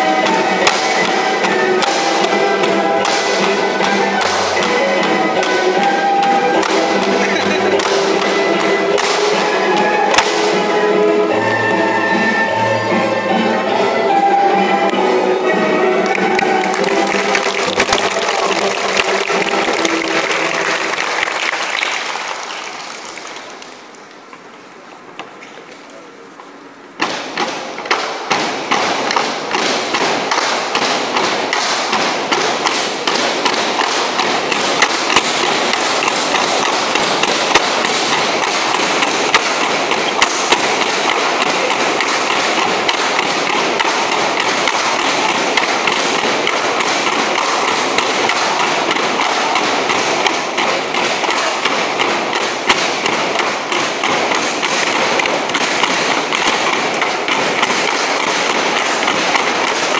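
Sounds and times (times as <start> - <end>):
bamboo poles clapping together: 0.0 - 11.5, 14.8 - 15.1, 15.9 - 24.5, 27.0 - 59.9
background din: 0.0 - 25.6
bamboo poles knocking on wooden floor: 0.1 - 10.5, 16.2 - 20.9, 27.0 - 59.9.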